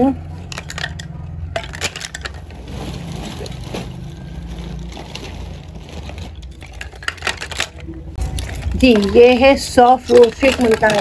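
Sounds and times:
handling rustling: 0:00.2 - 0:11.0.

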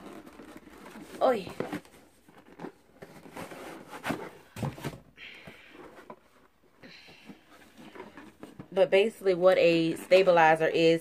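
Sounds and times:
cardboard packaging being opened: 0:00.0 - 0:05.1.

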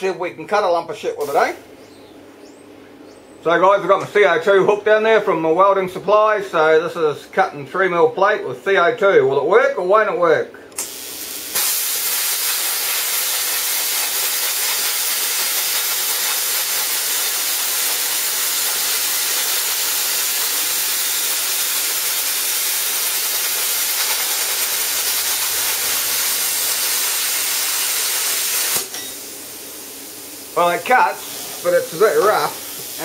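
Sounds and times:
plasma cutter hissing: 0:01.2 - 0:01.6, 0:10.8 - 0:33.0.

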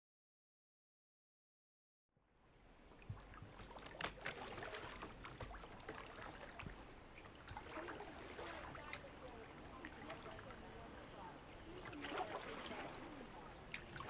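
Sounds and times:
water lapping around a kayak: 0:02.5 - 0:14.0
paddle splashes and drips: 0:02.8 - 0:14.0.

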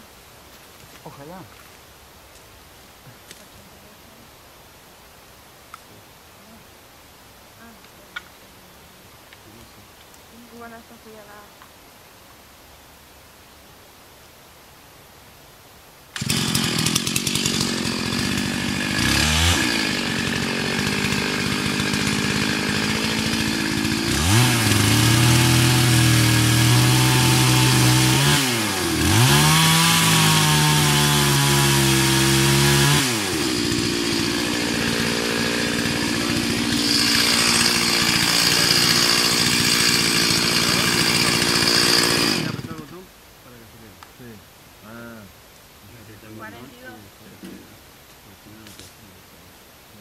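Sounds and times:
chainsaw running: 0:16.2 - 0:43.0.

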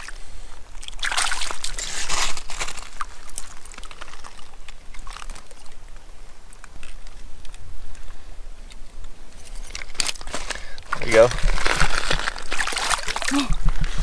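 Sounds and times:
water trickling and lapping: 0:00.0 - 0:08.8, 0:09.4 - 0:14.0.

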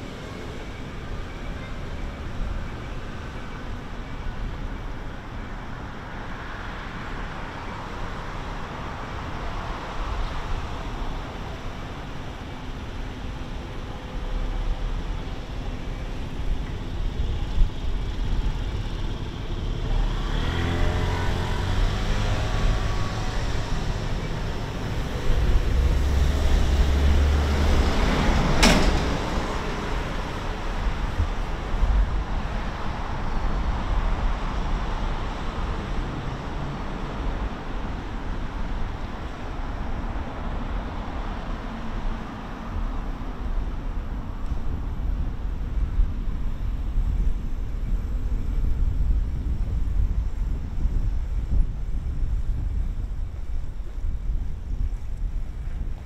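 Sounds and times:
traffic rumble: 0:00.0 - 0:56.0
car passing: 0:04.5 - 0:56.0.

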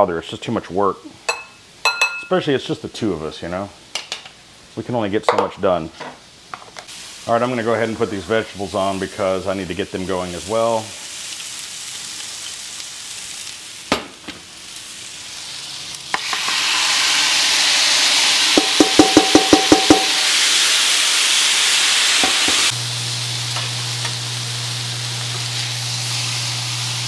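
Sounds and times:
vegetables sizzling on a grill: 0:05.8 - 0:27.0.

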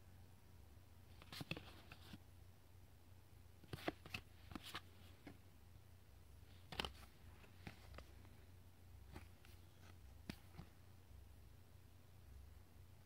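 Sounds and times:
faint low hum: 0:00.0 - 0:13.0
trading cards rustling and clicking: 0:01.1 - 0:02.2, 0:03.6 - 0:05.4, 0:06.5 - 0:08.4, 0:09.0 - 0:10.8.

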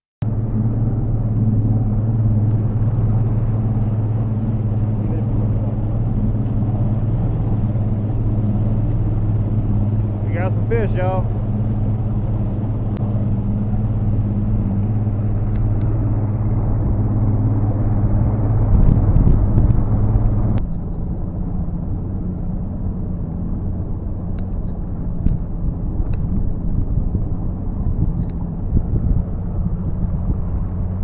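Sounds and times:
outboard motor drone: 0:00.2 - 0:31.0
water and wind rushing: 0:00.3 - 0:31.0
light ticks: 0:24.3 - 0:26.9.

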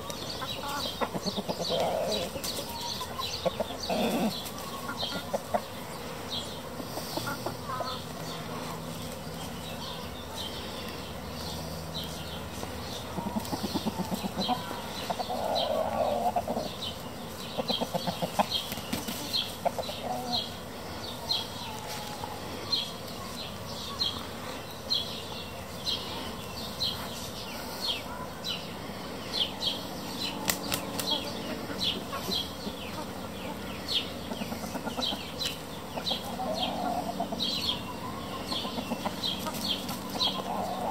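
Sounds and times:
hens clucking: 0:00.0 - 0:40.9
wing flapping: 0:30.4 - 0:31.2.

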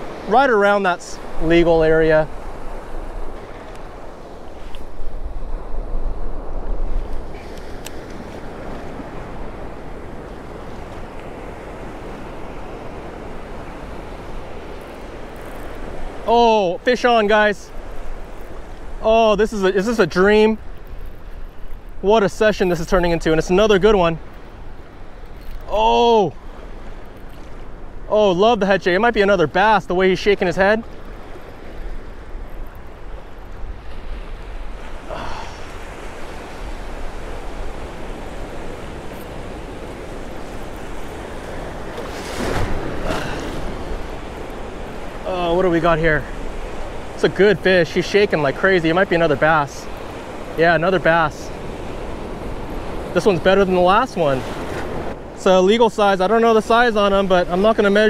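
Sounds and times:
wind rumbling on microphone: 0:00.0 - 0:16.3
ocean surf washing: 0:00.0 - 0:58.0.

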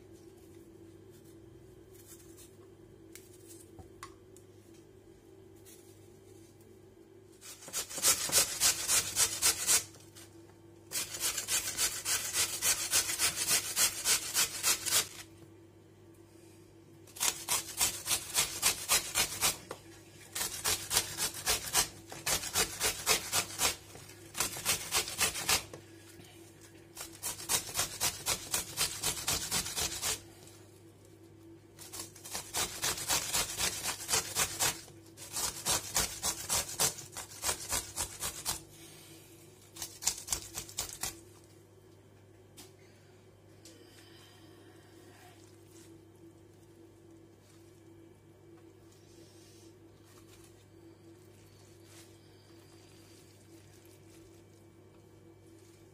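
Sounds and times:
potato grated on metal grater: 0:07.4 - 0:10.0, 0:10.9 - 0:15.2, 0:17.2 - 0:19.7, 0:20.3 - 0:25.8, 0:27.0 - 0:30.2, 0:31.8 - 0:38.6.

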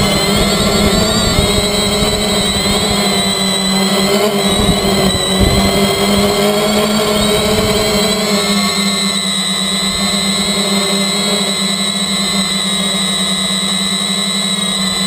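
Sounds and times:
wind buffeting microphone: 0:00.0 - 0:08.4
drone motors whining: 0:00.0 - 0:15.0.

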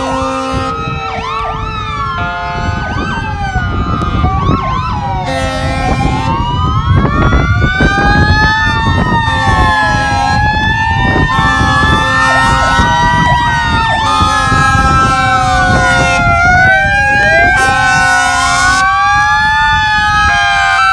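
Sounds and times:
low horn tones: 0:00.0 - 0:03.2, 0:05.2 - 0:06.4, 0:09.2 - 0:13.2, 0:14.0 - 0:19.0
emergency sirens wailing: 0:00.0 - 0:20.9.

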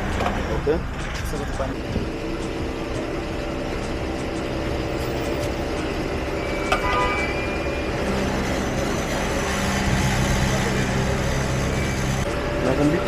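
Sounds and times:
high beep: 0:06.3 - 0:08.0.

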